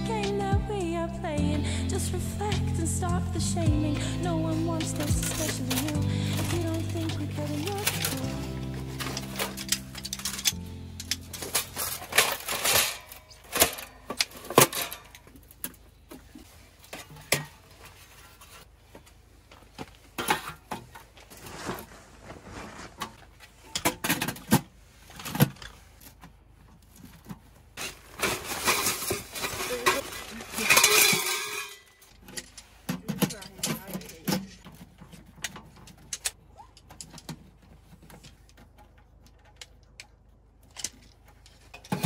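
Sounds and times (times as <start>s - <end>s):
rustling: 3.5s - 42.0s
metal stove clanks and scrapes: 4.7s - 15.2s, 16.9s - 18.6s, 27.8s - 36.4s, 41.4s - 42.0s.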